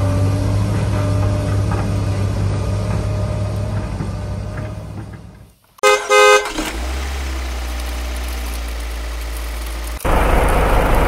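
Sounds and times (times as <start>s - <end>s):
truck engine: 0.0s - 11.0s
truck horn toot: 5.8s - 6.8s.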